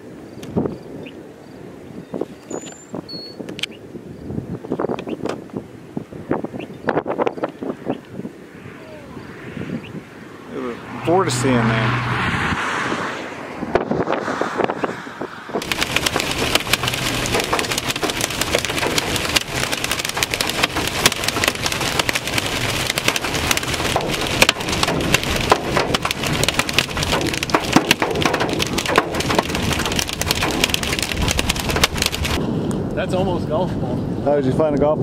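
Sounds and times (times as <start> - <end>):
hail pelting vehicle roof: 15.6 - 32.4
rain hiss: 15.6 - 33.2.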